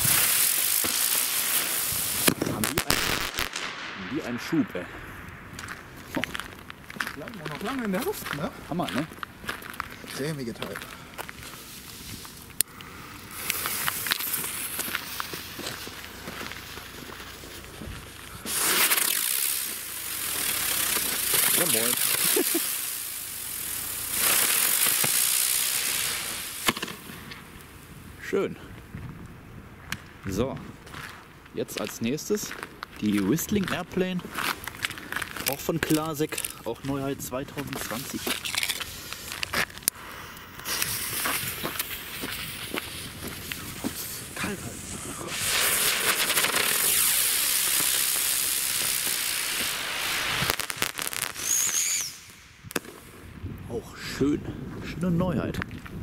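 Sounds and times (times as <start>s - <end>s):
sharp crack: 0.0s - 8.1s, 18.4s - 27.7s, 32.4s - 53.1s
firework rocket hissing: 0.0s - 8.9s, 9.6s - 28.2s, 33.1s - 53.4s
short high-pitched whistle: 51.4s - 52.3s.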